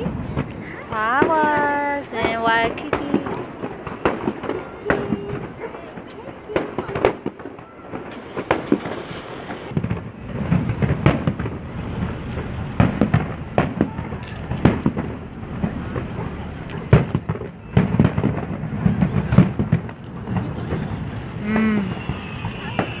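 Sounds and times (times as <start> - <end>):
fireworks bursting with sharp bangs: 0.0 - 23.0
low rumble of echoing booms: 6.8 - 21.4.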